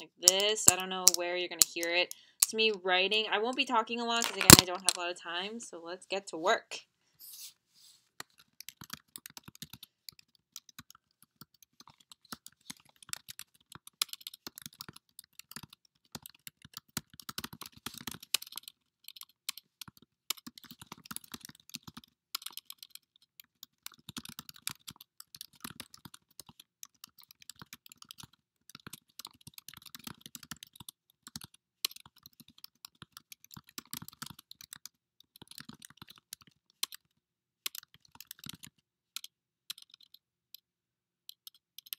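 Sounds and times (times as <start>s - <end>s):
keyboard key clicks: 4.1s - 5.0s.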